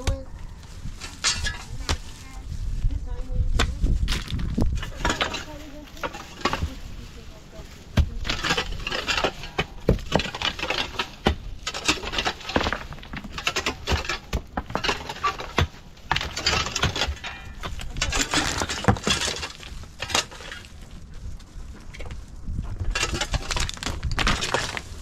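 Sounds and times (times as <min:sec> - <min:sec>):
pickaxes striking stony soil: 0:03.5 - 0:06.8, 0:07.8 - 0:20.8, 0:21.4 - 0:25.0.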